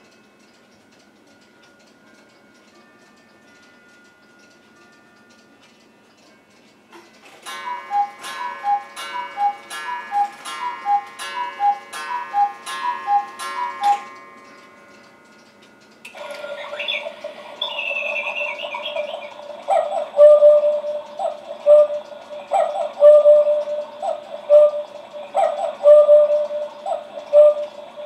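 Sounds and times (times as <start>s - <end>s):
clock melody: 0.0s - 28.0s
electronic two-note cuckoo calls: 7.6s - 14.1s, 16.2s - 28.0s.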